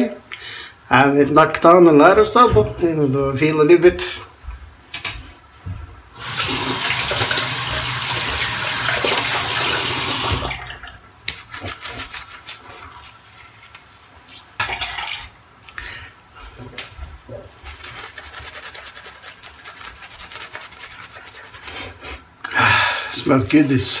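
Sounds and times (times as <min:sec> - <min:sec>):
tap running into sink: 0:06.2 - 0:10.6.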